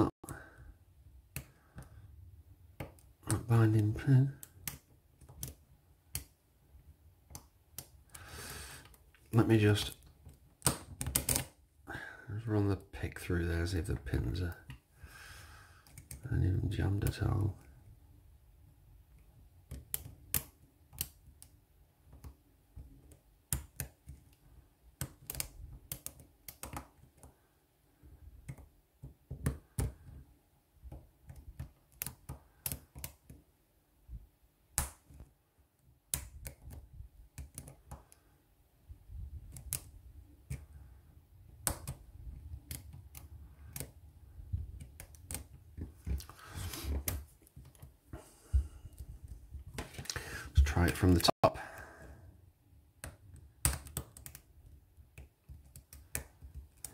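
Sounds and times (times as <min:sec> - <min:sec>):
lock pick clicking and scraping: 0:10.3 - 0:11.6, 0:25.0 - 0:27.3, 0:39.4 - 0:40.8, 0:41.5 - 0:46.4.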